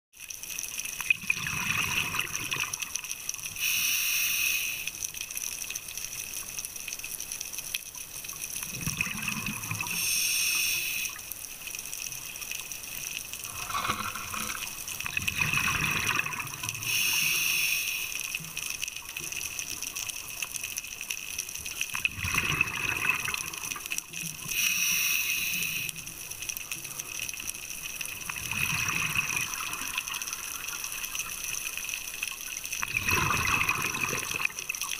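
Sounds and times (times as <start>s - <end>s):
exhaled bubbles underwater: 1.0s - 3.1s, 8.6s - 10.1s, 13.4s - 17.3s, 21.9s - 24.6s, 28.1s - 31.5s, 32.8s - 34.9s
hissing regulator inhale: 3.6s - 5.0s, 9.9s - 11.2s, 16.8s - 18.3s, 24.5s - 26.0s.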